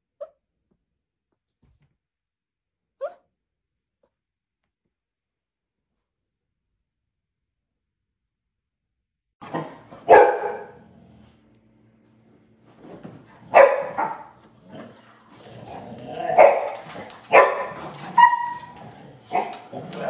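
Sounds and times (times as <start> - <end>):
dogs barking: 9.4 - 10.8, 13.5 - 14.4, 16.0 - 20.0
dog yelping: 17.3 - 19.6.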